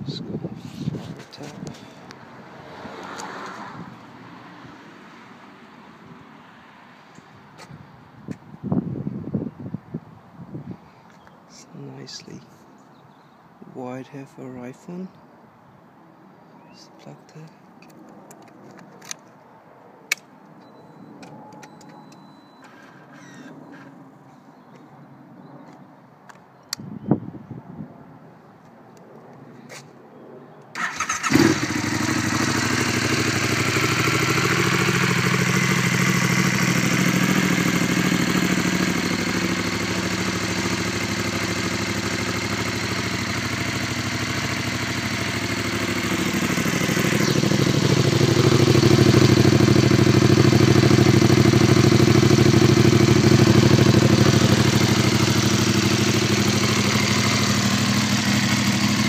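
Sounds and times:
motorcycle starter turning: 0:30.8 - 0:31.8
motorcycle engine idling: 0:30.8 - 0:59.0.

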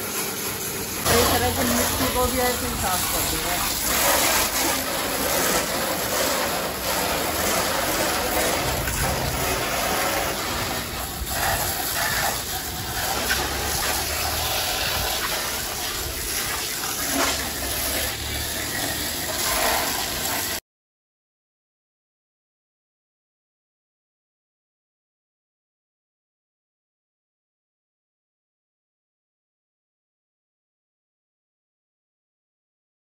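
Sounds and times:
pressure washer spraying water: 0:00.0 - 0:20.6.

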